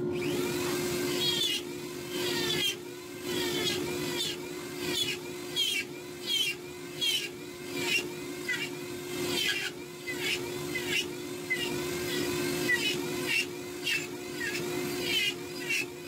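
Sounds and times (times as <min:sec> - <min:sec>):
rotary tool whining: 0:00.0 - 0:16.0
bur cutting into wood: 0:01.2 - 0:15.9.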